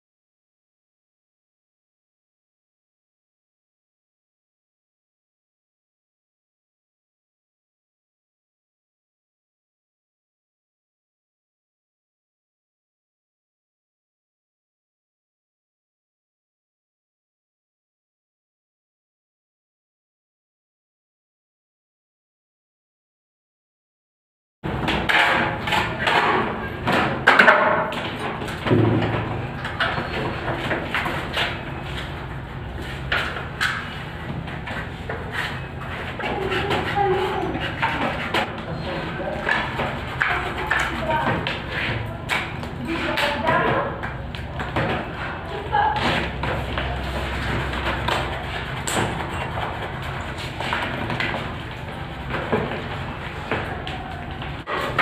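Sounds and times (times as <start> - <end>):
plastering blades scraping ceiling: 24.7 - 55.0.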